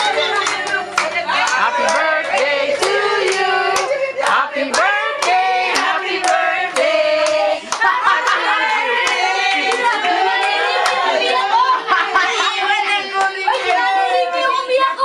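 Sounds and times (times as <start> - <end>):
group singing: 0.0 - 14.6
hand clapping: 0.1 - 8.0.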